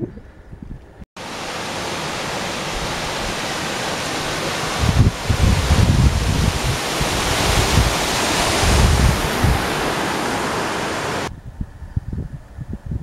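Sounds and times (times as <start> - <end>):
wind buffeting microphone: 0.0 - 13.0
small waterfall rushing: 1.2 - 11.3.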